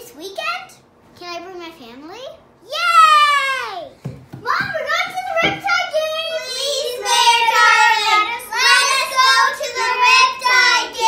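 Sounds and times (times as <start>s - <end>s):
girl singing: 6.2s - 11.0s.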